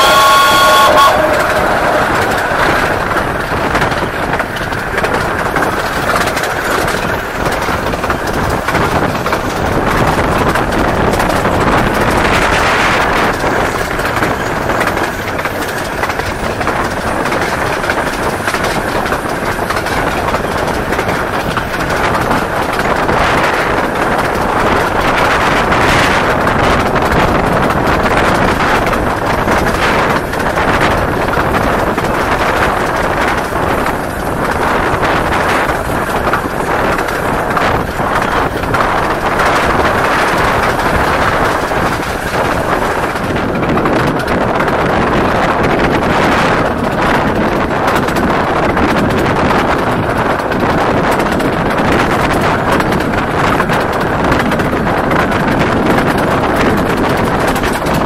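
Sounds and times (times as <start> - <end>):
train running noise: 0.0 - 58.0
wind rushing over microphone: 0.0 - 58.0.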